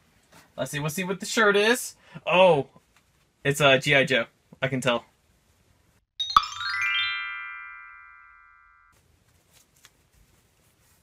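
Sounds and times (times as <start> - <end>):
bright musical chime: 6.2 - 9.0.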